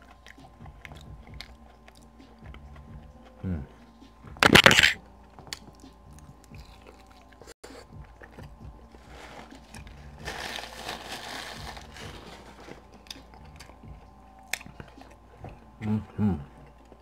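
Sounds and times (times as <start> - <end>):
chewing and mouth sounds: 0.0 - 15.8
biting into a rib: 4.0 - 15.5.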